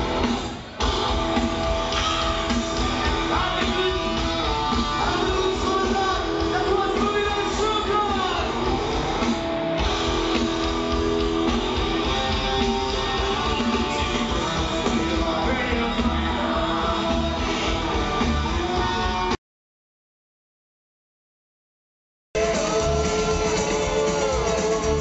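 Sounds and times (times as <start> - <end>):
live rock band: 0.0 - 19.4, 22.4 - 25.0
person singing: 13.1 - 18.9, 22.4 - 25.0.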